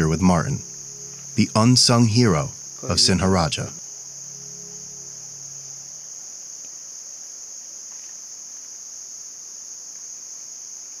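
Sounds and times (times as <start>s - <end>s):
faint low hum: 0.0s - 7.8s
insects chorus: 0.0s - 11.0s.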